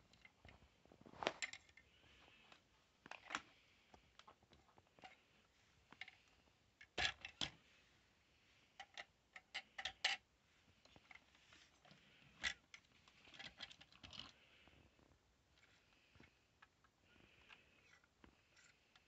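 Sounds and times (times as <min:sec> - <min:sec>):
plastic toy clicking and knocking: 0:06.8 - 0:07.6, 0:08.8 - 0:10.2, 0:12.4 - 0:14.4.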